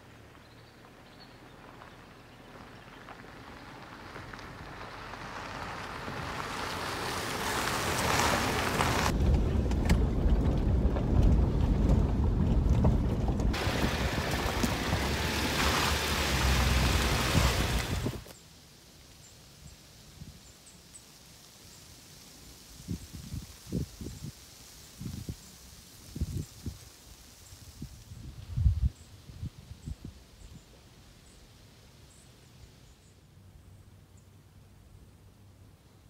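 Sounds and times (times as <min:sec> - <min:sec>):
car driving rumble: 0:00.0 - 0:18.3
tyres on dirt track: 0:00.0 - 0:18.4.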